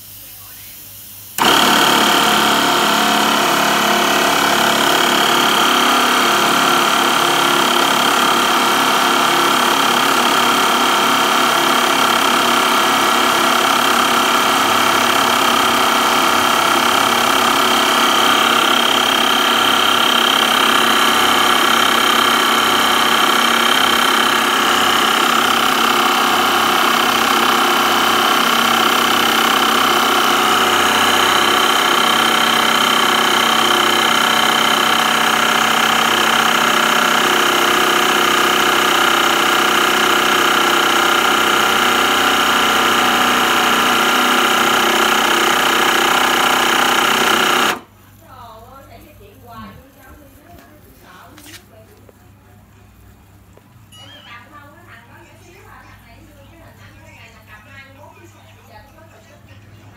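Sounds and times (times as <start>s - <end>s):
electric air pump running: 0.0s - 52.2s.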